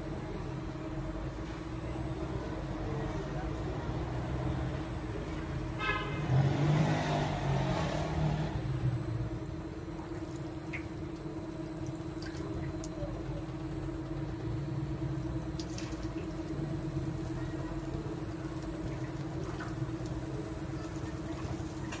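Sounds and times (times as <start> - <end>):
steady low hum: 0.0 - 22.0
faint crackles of embers: 9.0 - 22.0
liquid dripping: 9.6 - 22.0.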